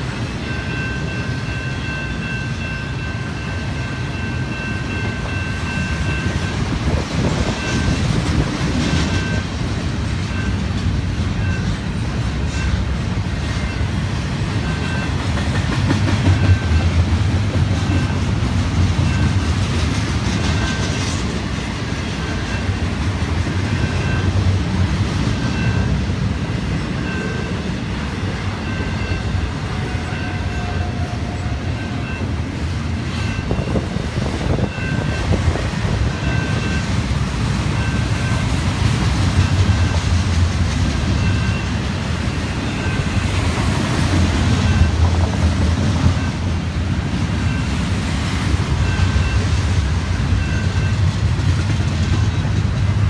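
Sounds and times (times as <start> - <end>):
level-crossing bell ringing: 0.0 - 6.6, 27.0 - 30.8, 36.0 - 37.0
freight train wheels rumbling: 0.0 - 53.0
wheels clacking over rail joints: 4.4 - 53.0.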